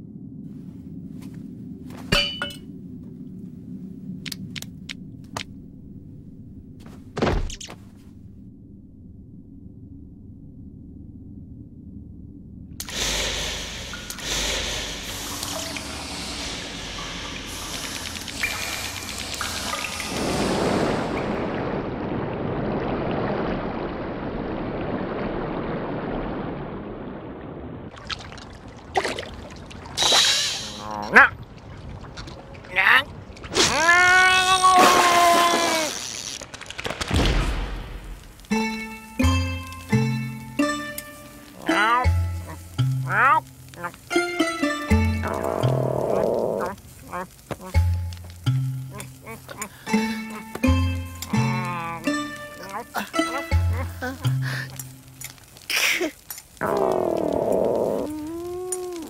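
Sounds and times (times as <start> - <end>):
low rumbling drone: 0.0 - 6.9, 8.0 - 22.9
heavy thud: 6.9 - 7.6
short sharp water sounds: 12.8 - 34.0, 34.6 - 59.0
muffled watery rush: 12.8 - 59.0.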